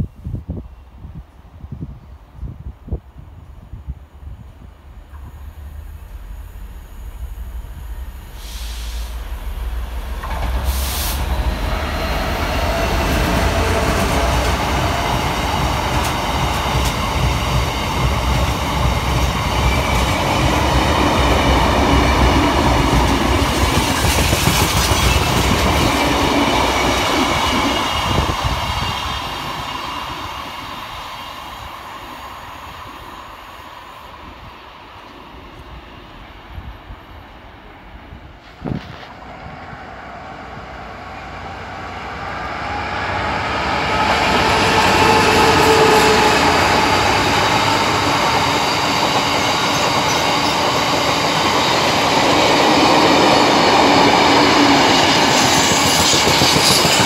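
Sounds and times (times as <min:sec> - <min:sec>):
diesel locomotive: 0:00.0 - 0:57.0
train wheels clattering over rail joints: 0:53.9 - 0:57.0.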